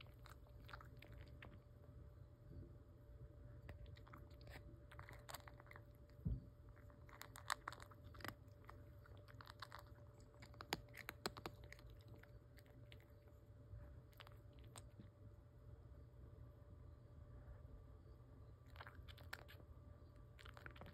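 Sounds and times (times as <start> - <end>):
cat crunching dry food: 0.0 - 1.8, 3.6 - 13.4, 14.0 - 15.1, 18.6 - 20.9.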